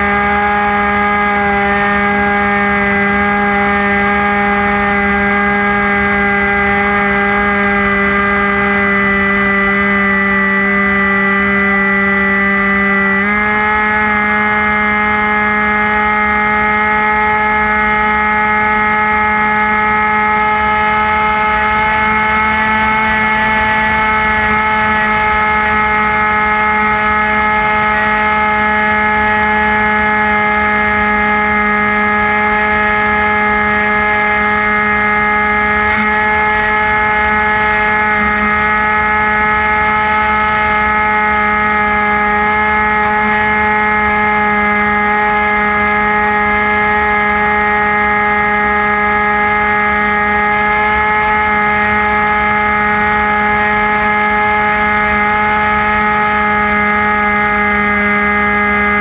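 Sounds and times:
electric motor whine: 0.0s - 59.0s.

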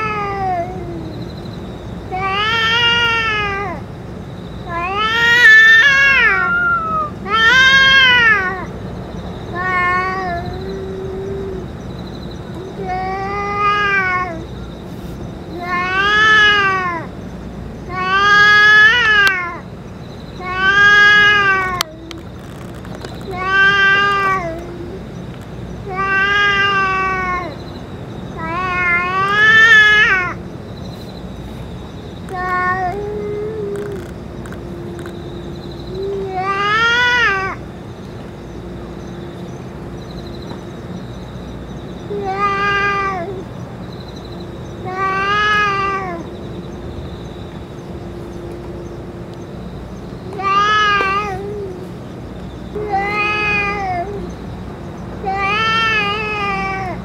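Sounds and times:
cat yowling: 4.6s - 8.7s, 9.5s - 11.7s, 12.5s - 14.5s, 15.5s - 17.1s, 20.4s - 22.3s, 23.3s - 25.1s, 25.8s - 27.6s, 28.4s - 30.4s, 32.3s - 34.2s, 35.8s - 37.6s, 42.1s - 43.5s, 44.8s - 46.3s, 50.4s - 52.0s, 52.7s - 54.4s.

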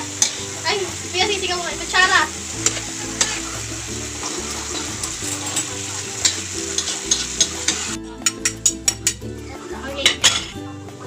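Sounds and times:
spoon scraping a pan: 0.0s - 0.6s, 2.0s - 9.2s
sauce sizzling in a wok: 0.0s - 9.3s
background music with low notes: 0.0s - 11.0s.

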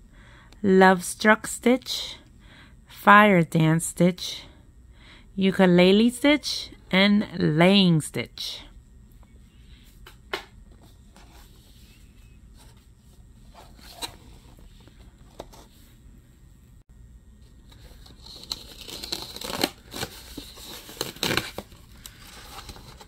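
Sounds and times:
cardboard tearing and crinkling: 17.7s - 23.0s.

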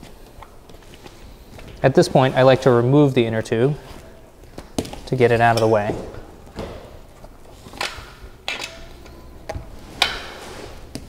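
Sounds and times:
rubbery rustling: 0.0s - 8.4s.

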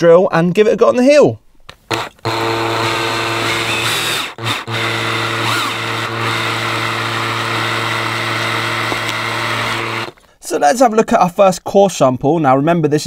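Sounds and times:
power drill cutting foam: 1.7s - 10.2s.

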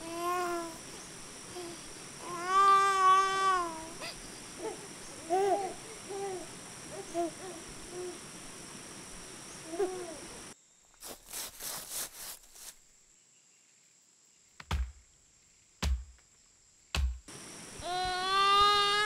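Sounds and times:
infant cooing and babbling: 0.0s - 0.8s, 1.5s - 8.2s, 9.6s - 10.3s, 17.8s - 19.0s
steady hiss: 0.0s - 13.0s, 17.3s - 19.0s
sharp chops with low thud: 14.6s - 15.0s, 15.8s - 16.2s, 17.0s - 17.3s.

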